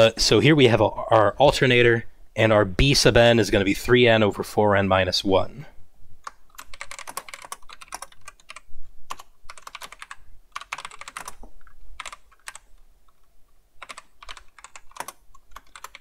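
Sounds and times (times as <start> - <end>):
computer keyboard typing: 6.2 - 16.0.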